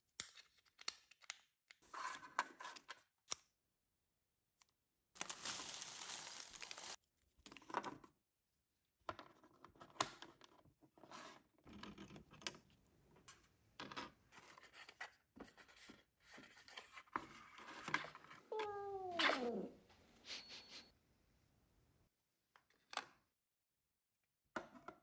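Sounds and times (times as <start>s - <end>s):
cardboard box being folded: 5.2s - 7.0s
plastic packet crinkling: 5.2s - 7.0s.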